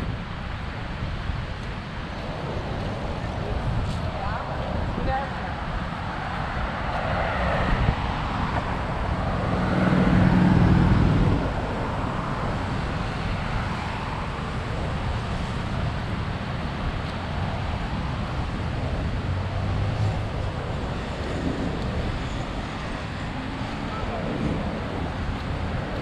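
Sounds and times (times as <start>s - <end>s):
road traffic: 0.0s - 26.0s
vehicle engine passing close: 6.7s - 12.7s.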